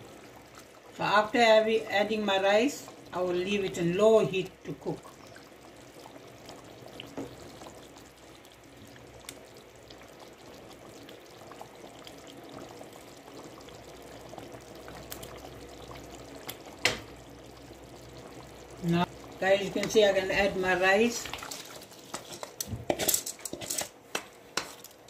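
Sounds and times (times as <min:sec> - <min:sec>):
spoon stirring liquid sloshing: 0:21.2 - 0:25.0.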